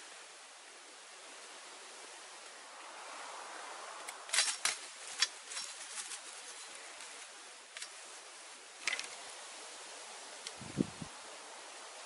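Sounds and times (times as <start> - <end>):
dry bamboo sticks snapping: 4.0 - 6.3, 8.8 - 9.2.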